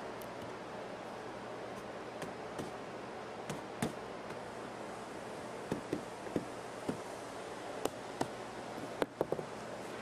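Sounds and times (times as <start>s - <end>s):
steady background hiss: 0.0s - 10.0s
rubber mallet knocking wood: 5.7s - 7.0s.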